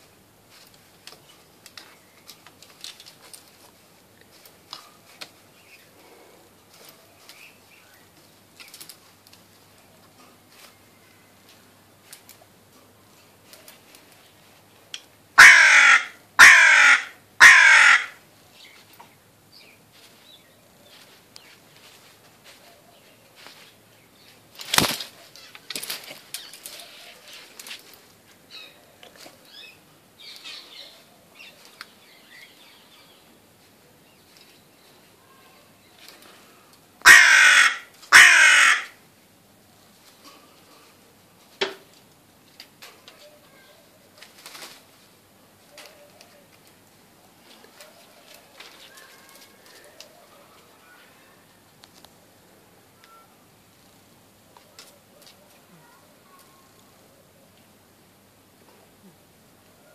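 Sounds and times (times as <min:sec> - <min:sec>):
crow cawing: 0:15.4 - 0:18.2, 0:37.0 - 0:39.0.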